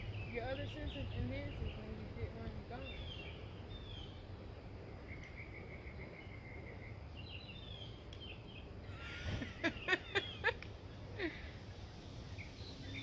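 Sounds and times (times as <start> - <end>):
low background noise: 0.0 - 13.0
small birds chirping: 0.0 - 13.0.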